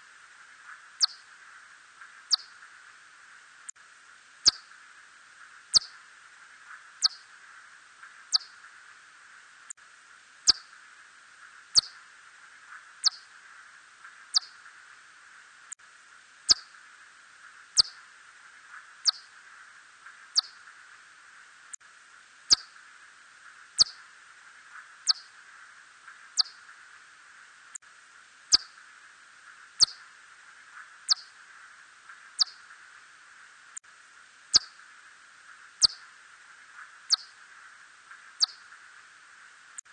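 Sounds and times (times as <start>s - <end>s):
faint steady hiss: 0.0s - 39.9s
bat chirps sweeping downward: 1.0s - 1.2s, 8.3s - 8.6s, 11.8s - 12.0s, 13.0s - 13.2s, 14.3s - 14.6s, 20.4s - 20.6s, 22.5s - 22.7s, 26.4s - 26.6s, 29.8s - 30.0s, 31.1s - 31.3s, 32.4s - 32.7s, 35.8s - 36.0s, 38.4s - 38.6s.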